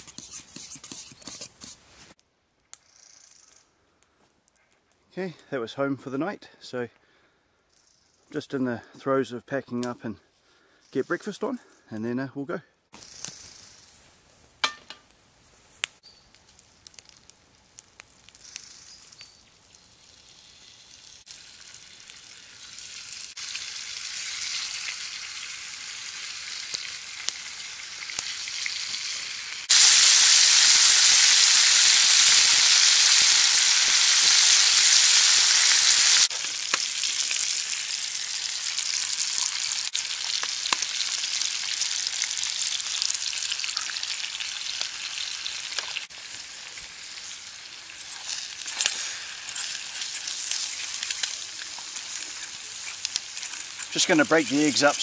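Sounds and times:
bacon sizzling in a frying pan: 0:16.6 - 0:55.0.

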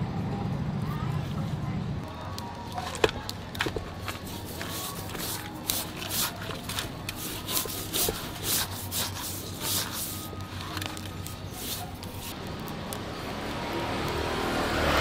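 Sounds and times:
salt rubbing on fish scales: 0:02.8 - 0:12.4.

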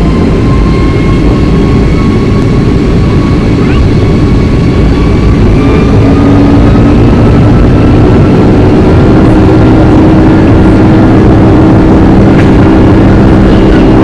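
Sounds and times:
faint rising whine: 0:00.0 - 0:14.0
jet engine rumble in cabin: 0:00.0 - 0:14.0
low hum: 0:00.0 - 0:14.0.

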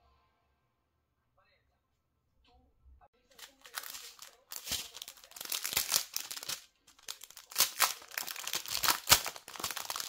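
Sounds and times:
plastic bag crinkling: 0:03.3 - 0:10.0.

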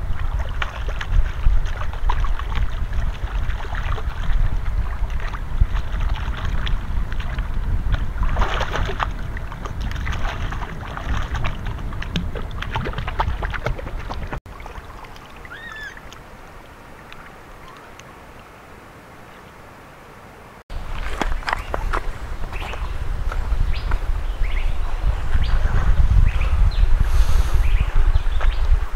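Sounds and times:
low rumble: 0:00.0 - 0:14.4
river water splashing: 0:00.0 - 0:25.5
quiet outdoor background: 0:11.5 - 0:28.9.

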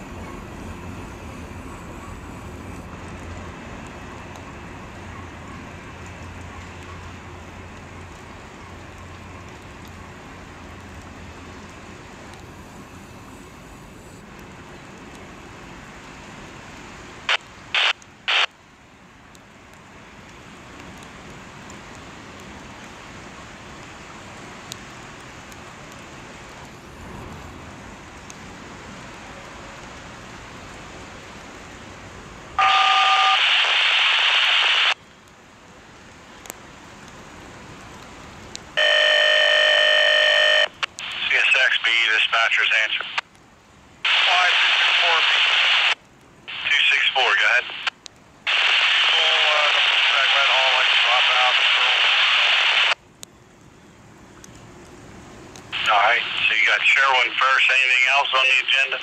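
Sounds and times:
steady background hiss: 0:00.0 - 0:59.0
radio static burst: 0:17.3 - 0:18.5, 0:32.6 - 0:35.0, 0:38.8 - 0:43.2, 0:44.1 - 0:47.9, 0:48.5 - 0:53.0, 0:55.8 - 0:59.0
two-tone radio beep: 0:32.6 - 0:35.0, 0:38.8 - 0:43.2.

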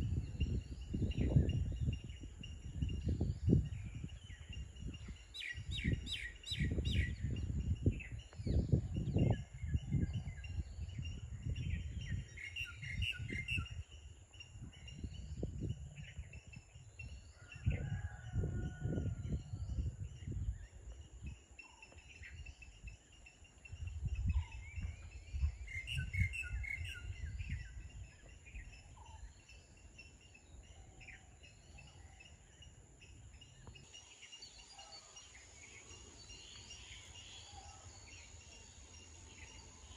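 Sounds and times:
gusty rumbling: 0:00.0 - 0:13.6.

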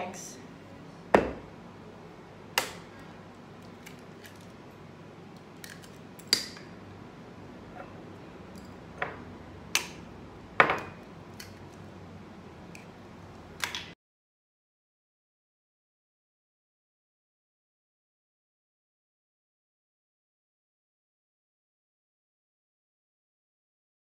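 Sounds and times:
eggs tapped and cracked: 0:05.4 - 0:06.8.

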